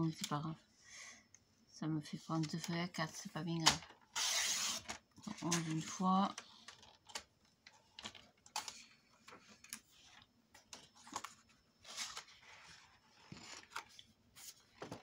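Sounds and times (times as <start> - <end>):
card rustling and sliding: 8.5 - 15.0.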